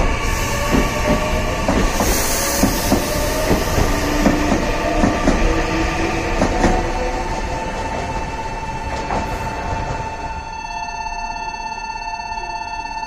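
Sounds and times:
train wheels clacking over rail joints: 0.6 - 10.1.

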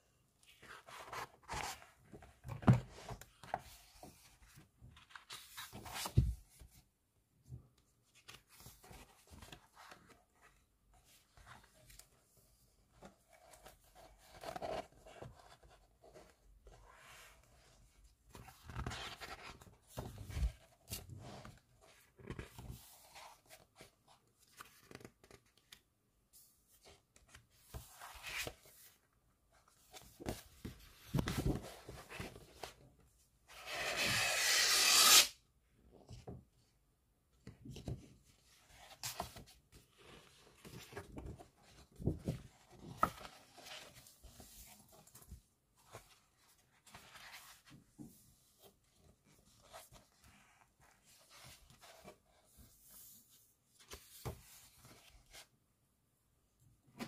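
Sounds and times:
book pages rustling: 0.4 - 6.8, 8.0 - 32.9, 37.6 - 55.6.

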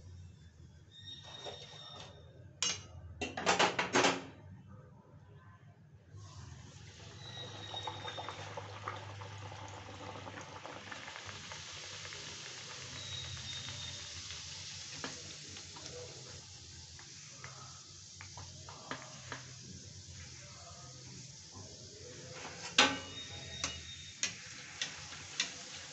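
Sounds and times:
dough sizzling in hot oil: 6.2 - 25.9.

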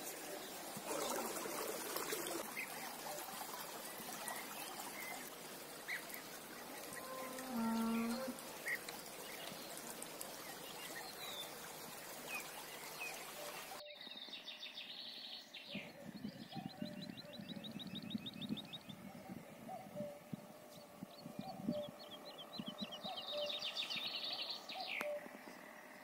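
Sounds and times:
trickling water hiss: 0.0 - 15.9
songbirds singing: 2.0 - 26.0
faint bird chirps: 13.3 - 25.9.

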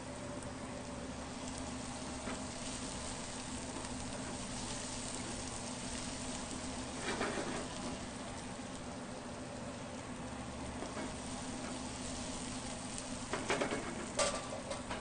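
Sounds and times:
onion sizzling in a frying pan: 0.0 - 15.0
spatula stirring in pan: 1.3 - 8.8, 10.8 - 15.0.

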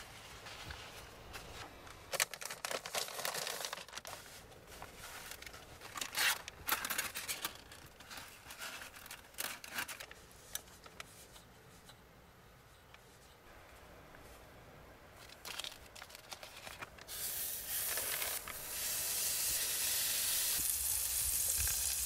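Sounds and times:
crinkly material rustling and tearing: 0.0 - 11.3, 15.1 - 17.1.

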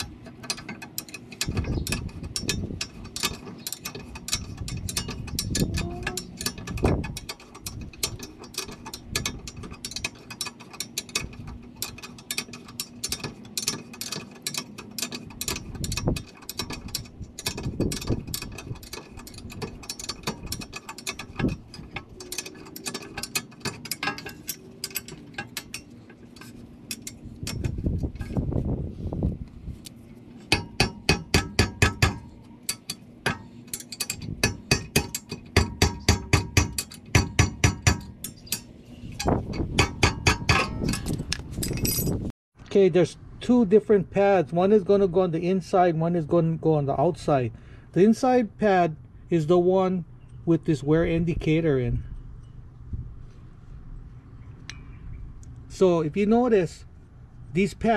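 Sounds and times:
ratcheting wrench clicking: 0.0 - 28.4, 33.7 - 42.2.

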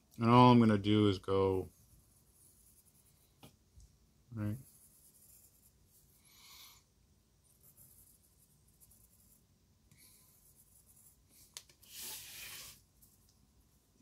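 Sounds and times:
pencil scratching on paper: 1.6 - 3.4, 4.6 - 6.7, 7.4 - 13.2
rubbing sound: 10.4 - 13.2.

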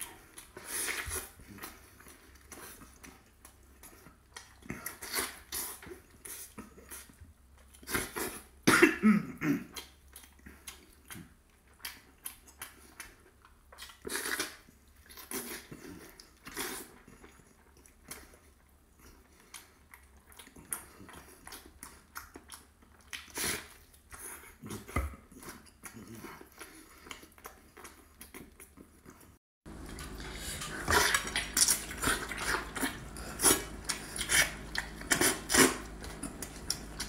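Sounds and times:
wet chewing and lip-smacking: 0.0 - 8.6, 9.7 - 37.0
wet slurps: 29.7 - 37.0.

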